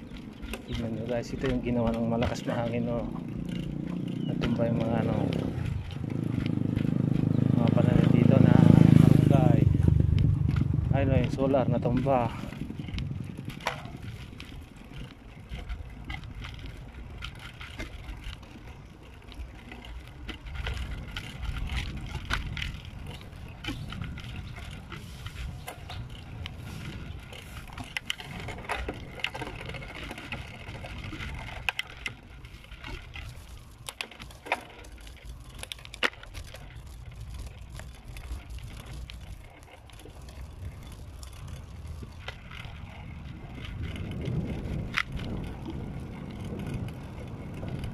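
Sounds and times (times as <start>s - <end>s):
bicycle rattling clicks: 0.0s - 47.9s
wind and tyres rumbling: 0.0s - 47.9s.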